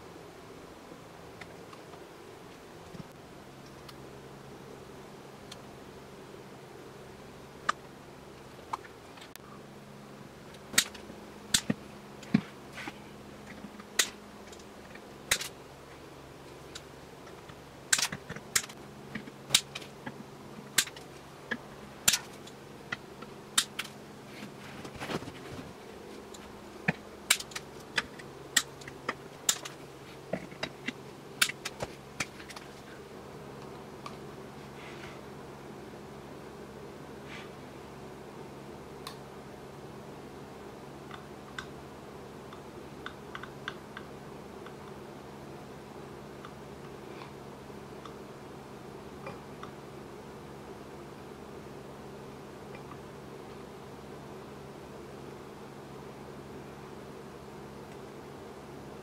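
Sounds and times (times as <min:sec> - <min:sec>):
low steady hum: 0:00.0 - 0:59.0
hot stapler clicks and snaps: 0:17.9 - 0:18.7, 0:27.3 - 0:27.7.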